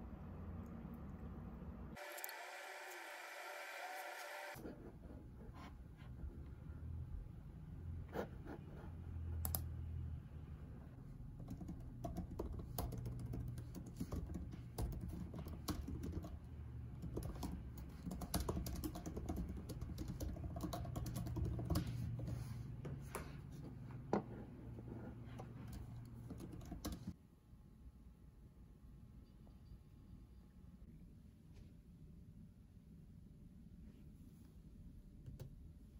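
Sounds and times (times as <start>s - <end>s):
laptop keyboard typing: 9.4s - 9.7s, 11.3s - 22.5s, 25.7s - 27.2s.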